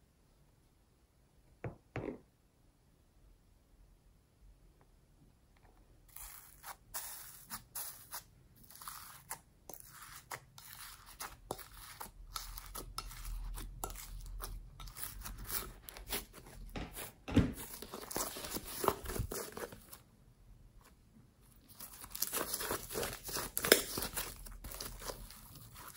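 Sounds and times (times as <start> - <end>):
slime crackling and popping: 21.7 - 25.9.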